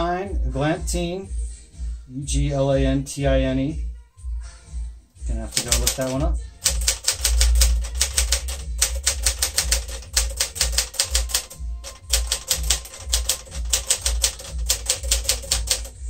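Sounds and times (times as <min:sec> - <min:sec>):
manual typewriter typing: 0:05.4 - 0:16.0.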